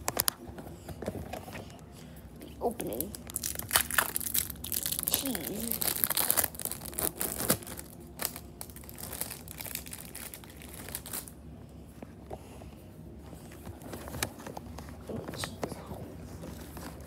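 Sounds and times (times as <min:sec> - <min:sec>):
plastic packaging crinkling: 0:02.8 - 0:11.4.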